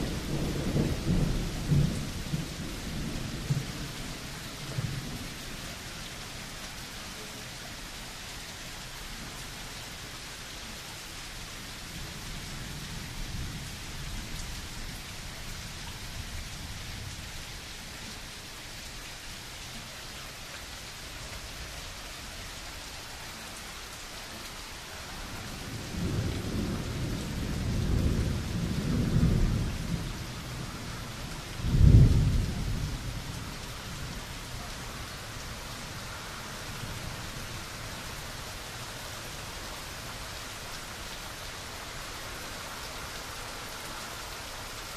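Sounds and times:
low thunder rumbling: 0.0s - 5.3s, 25.2s - 34.2s
heavy rain: 0.0s - 44.9s
sharp thunderclap: 31.7s - 32.4s.

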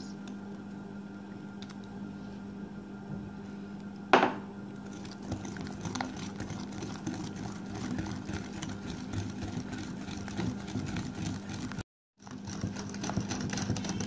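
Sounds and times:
steady low hum: 0.0s - 14.0s
whisk scraping glass bowl: 4.8s - 14.0s.

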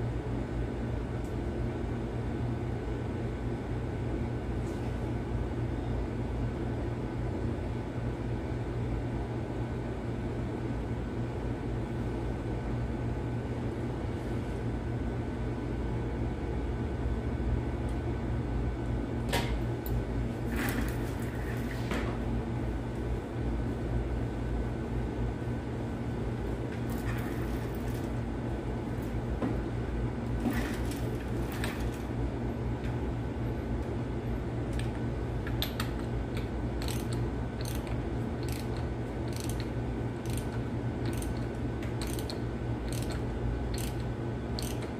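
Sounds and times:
low background hum: 0.0s - 44.9s
socket wrench ratcheting clicks: 35.6s - 44.9s.

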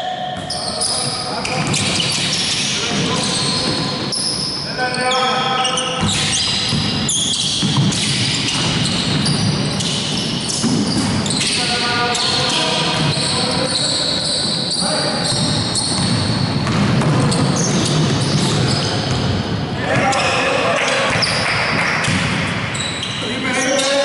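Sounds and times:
sneakers squeaking: 0.0s - 24.0s
basketball dribbling on hardwood: 6.0s - 11.2s, 15.3s - 19.2s.

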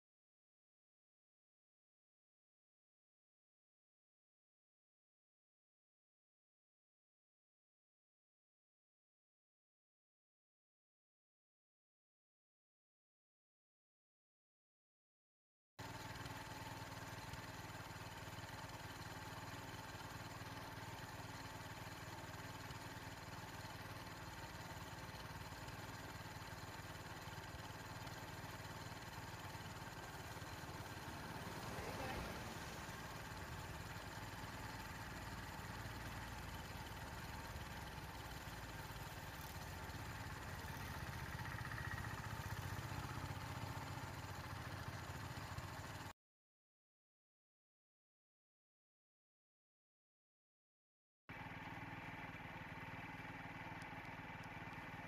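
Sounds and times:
vehicle engine idling: 15.8s - 46.1s, 51.3s - 55.0s
car passing: 31.0s - 33.4s.

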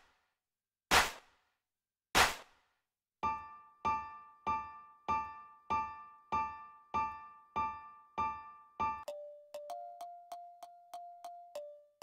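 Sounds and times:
piano chord loop: 3.2s - 12.0s.

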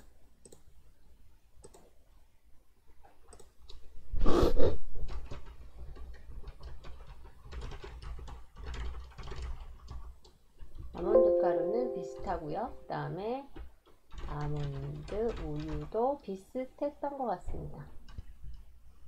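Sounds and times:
typing on computer keyboard: 5.1s - 10.9s, 13.8s - 16.0s.

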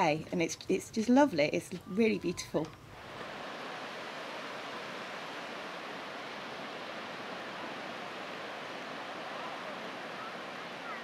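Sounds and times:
distant surf breaking: 2.9s - 11.0s.

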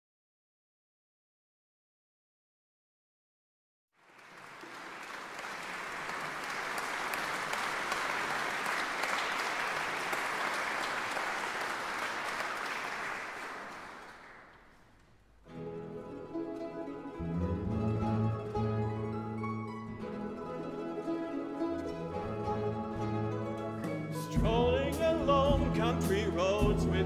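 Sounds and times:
audience applauding: 4.0s - 15.1s
mandolin orchestra playing: 15.5s - 27.0s.

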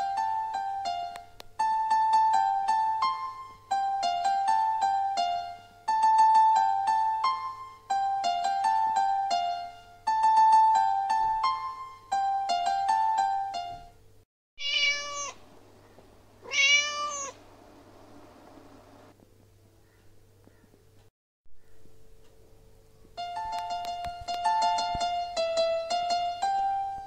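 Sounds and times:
light keyboard music: 0.0s - 14.2s, 23.0s - 27.0s
cat meowing: 14.6s - 15.4s, 16.4s - 17.4s.

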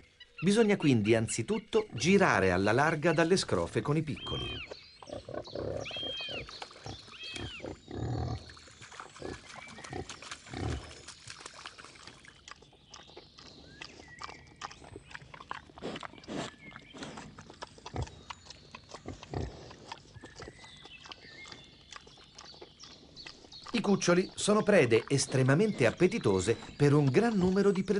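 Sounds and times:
wild boar grunting and snuffling: 0.0s - 27.9s.

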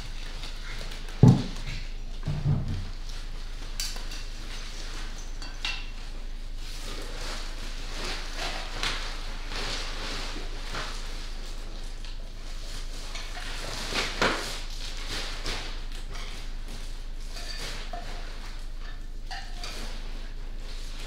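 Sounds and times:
dishes and utensil clinking: 0.0s - 6.2s, 17.2s - 21.0s.

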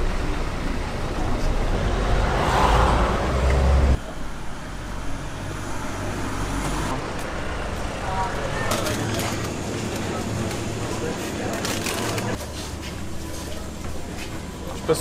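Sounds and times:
outdoor background noise: 0.0s - 15.0s
road traffic: 0.0s - 15.0s
motor vehicle passing: 1.2s - 4.0s.

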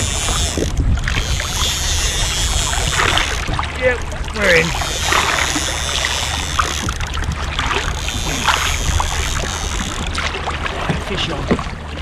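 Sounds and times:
fishing reel clicking: 0.0s - 3.6s, 4.5s - 10.2s
water washing against kayak: 0.0s - 12.0s
wind rumbling on microphone: 0.0s - 12.0s.

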